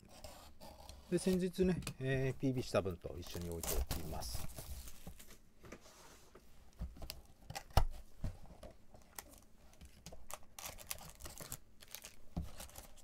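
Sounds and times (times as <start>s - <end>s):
foil wrappers crinkling: 9.1s - 13.0s.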